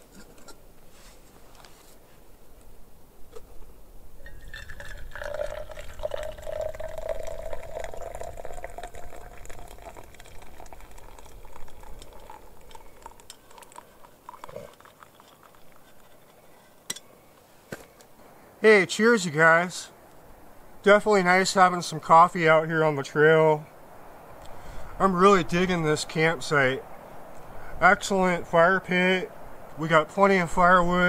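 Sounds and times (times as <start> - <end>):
coffee pouring into a cup: 4.3 - 16.5.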